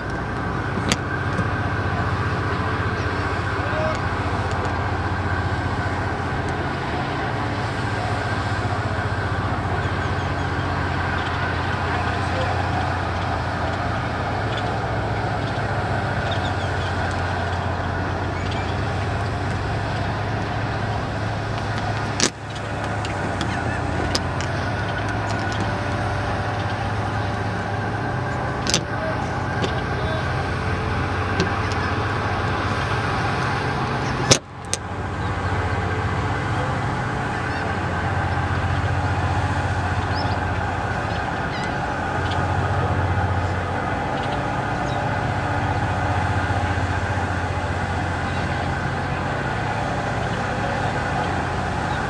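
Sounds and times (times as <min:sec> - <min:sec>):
low engine hum: 0:00.0 - 0:52.0
outdoor background noise: 0:00.0 - 0:52.0.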